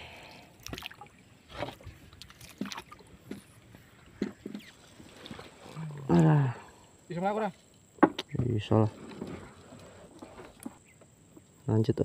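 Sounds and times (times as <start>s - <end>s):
knocks and splashes against canoe: 0.6s - 6.3s.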